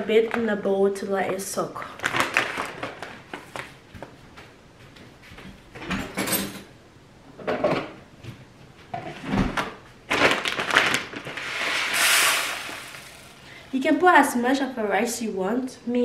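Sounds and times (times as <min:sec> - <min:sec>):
dry rice rustling: 0:11.3 - 0:13.5
rice grains pouring into bowl: 0:11.3 - 0:13.5.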